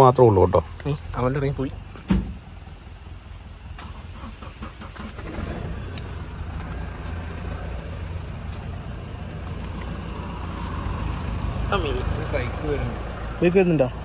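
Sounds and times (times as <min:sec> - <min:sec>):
engine rumbling in low gear: 0:00.8 - 0:14.0.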